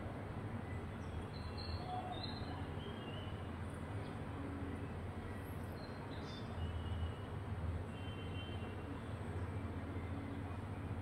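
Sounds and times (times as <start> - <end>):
faint bird chirps: 0.6 - 4.2.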